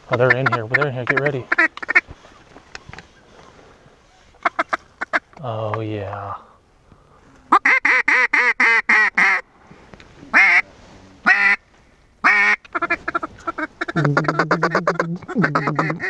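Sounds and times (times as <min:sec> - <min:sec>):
duck call quacks: 0:07.5 - 0:09.4, 0:10.3 - 0:10.6, 0:11.3 - 0:11.6, 0:12.2 - 0:16.0.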